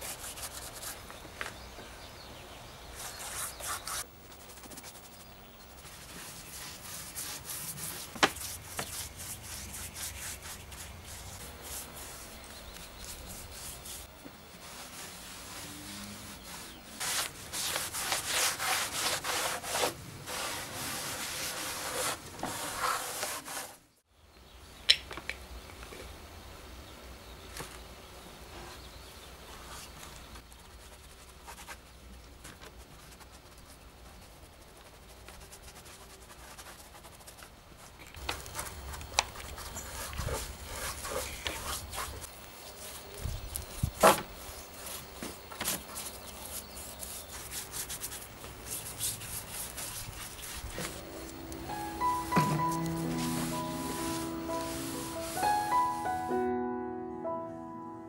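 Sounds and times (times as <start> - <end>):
bristle brush strokes on wood: 0.0 - 1.6, 2.9 - 23.8, 29.5 - 56.3
cloth rubbing on wood: 3.0 - 23.8, 38.2 - 43.1, 43.7 - 56.3.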